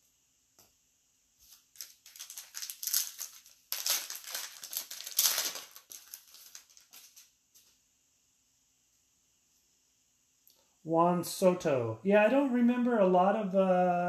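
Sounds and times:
foil wrapper crinkling and tearing: 0:01.5 - 0:07.3.

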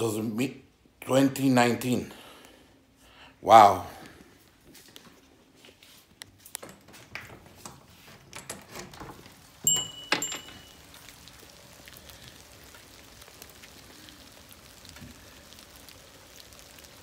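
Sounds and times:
light rain falling: 0:06.3 - 0:17.0.

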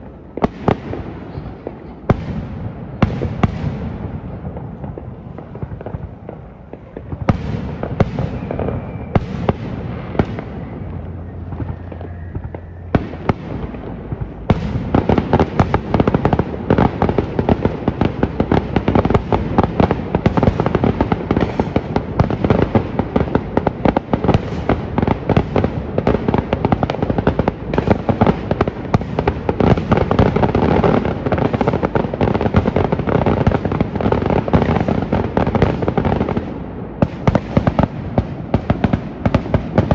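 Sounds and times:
fireworks bangs: 0:00.0 - 0:39.9
fireworks crackling pops: 0:00.0 - 0:39.9.

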